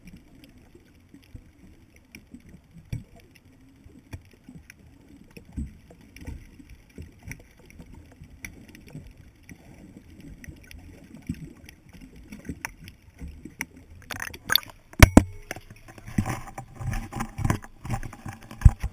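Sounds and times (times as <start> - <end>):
water splashing: 9.7 - 18.9
camera handling noise: 14.0 - 18.9.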